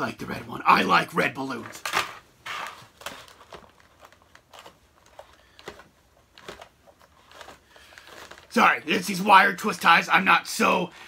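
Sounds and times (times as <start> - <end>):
twist ties clicking and rustling: 1.5 - 9.9.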